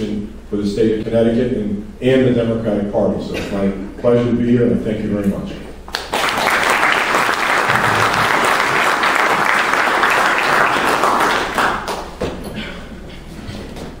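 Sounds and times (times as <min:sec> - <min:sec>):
audience applauding: 0:05.9 - 0:12.2.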